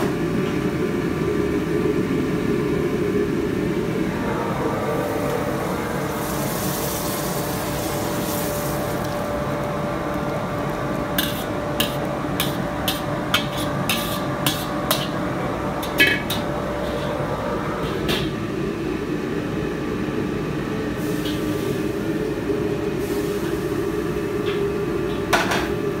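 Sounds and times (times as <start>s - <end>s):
wok burner roaring: 0.0s - 26.0s
metal wok knocks and scrapes: 11.2s - 15.2s.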